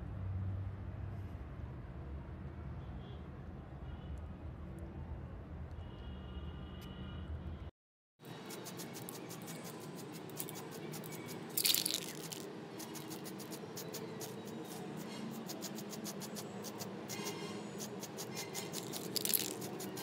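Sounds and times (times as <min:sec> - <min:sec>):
spray paint can hissing: 0:08.5 - 0:14.7, 0:15.4 - 0:20.0.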